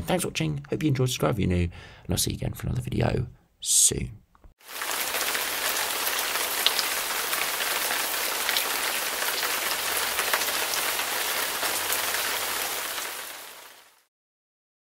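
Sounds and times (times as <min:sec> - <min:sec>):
heavy rain falling: 0:04.6 - 0:14.1.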